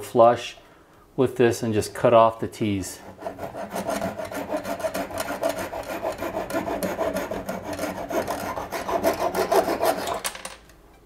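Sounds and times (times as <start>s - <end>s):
hacksaw blade sawing wood: 3.0s - 10.2s.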